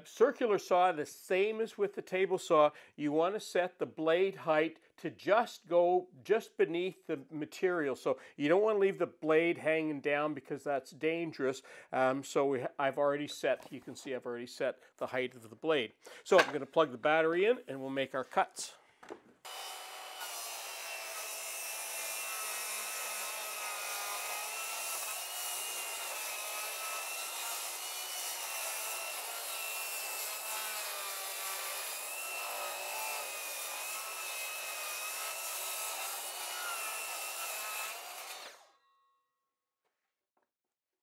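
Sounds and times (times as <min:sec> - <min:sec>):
circular saw cutting wood: 0:19.4 - 0:38.8.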